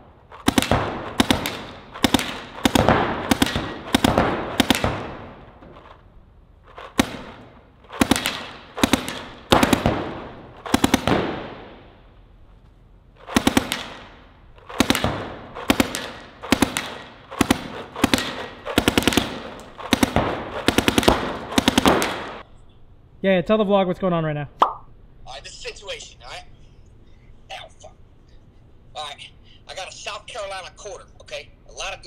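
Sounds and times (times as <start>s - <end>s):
paintball marker firing: 0.3s - 6.0s, 6.7s - 11.8s, 13.2s - 22.4s.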